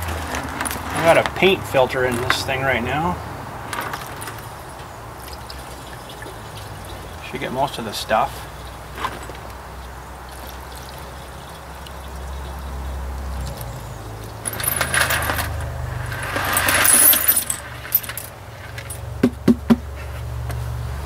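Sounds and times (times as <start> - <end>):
fluid pouring through filter: 5.2 - 7.2, 9.8 - 12.8.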